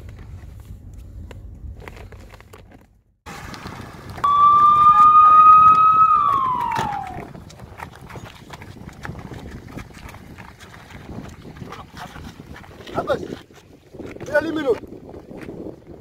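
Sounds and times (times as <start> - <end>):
running footsteps: 3.5 - 12.9
police siren wail: 4.2 - 7.3.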